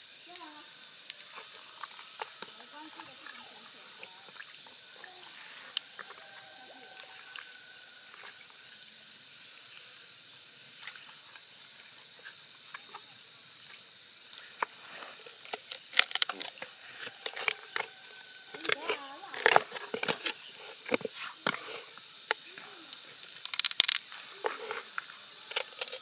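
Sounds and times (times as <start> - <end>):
mussel shell scraping and clicking: 1.1 - 3.4, 15.3 - 26.0
faint high hiss: 18.0 - 26.0
shell cracking and knocking: 23.3 - 24.0.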